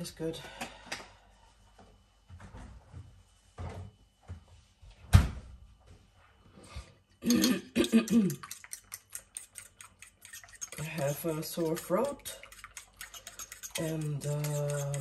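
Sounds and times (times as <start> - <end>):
spoon scraping a ceramic bowl: 7.4 - 15.0.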